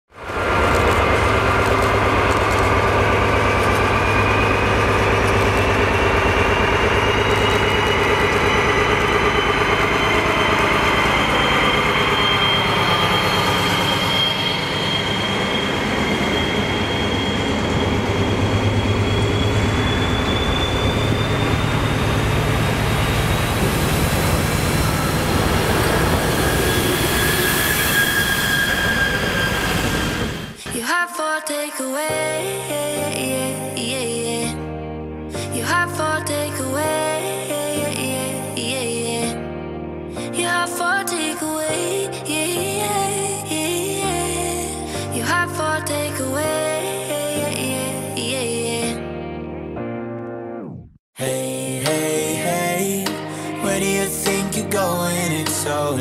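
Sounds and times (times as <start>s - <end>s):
high whine rising in pitch: 0.1s - 30.6s
diesel locomotive drone: 0.1s - 30.8s, 50.7s - 56.0s
rail noise: 0.1s - 31.0s, 51.7s - 56.0s.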